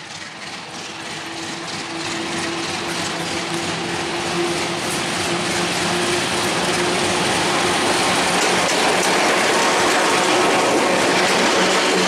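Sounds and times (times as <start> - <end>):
diesel locomotive engine hum: 0.0 - 12.0
train wheels on rails: 0.0 - 12.0.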